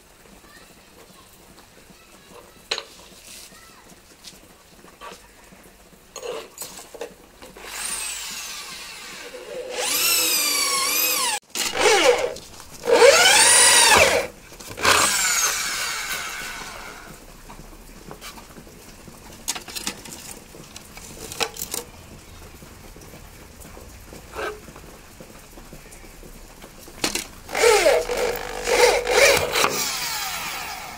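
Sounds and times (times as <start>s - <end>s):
electric drill boring into wood: 7.6s - 17.2s, 27.5s - 30.9s.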